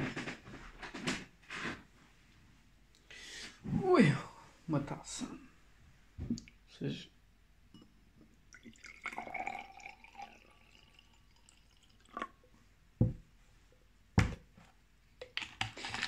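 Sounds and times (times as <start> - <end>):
iced tea pouring into glass: 8.5 - 12.4
bottle knocking on tabletop: 13.0 - 13.2.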